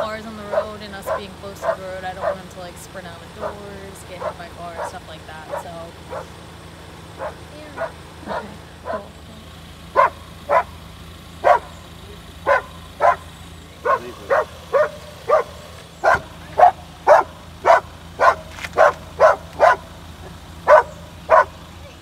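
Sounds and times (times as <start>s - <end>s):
dog barking: 0.5s - 2.4s, 4.2s - 6.4s, 7.2s - 9.2s, 9.9s - 10.8s, 11.4s - 11.8s, 12.4s - 21.6s.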